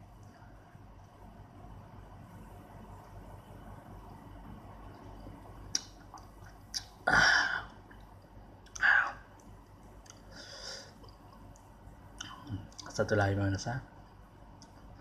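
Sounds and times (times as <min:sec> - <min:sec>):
mouth clicks: 0:05.7 - 0:07.0
man's sharp breaths: 0:10.3 - 0:11.0.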